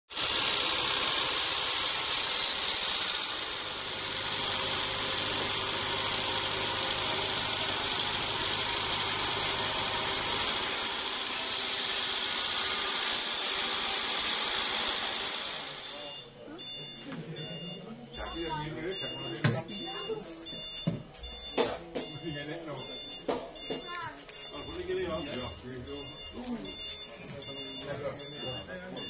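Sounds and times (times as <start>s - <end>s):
saw blade cutting log: 0.1s - 16.0s.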